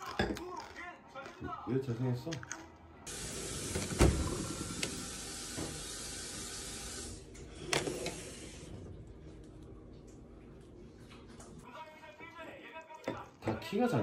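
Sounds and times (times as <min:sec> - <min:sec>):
steady hiss: 0:03.1 - 0:08.7.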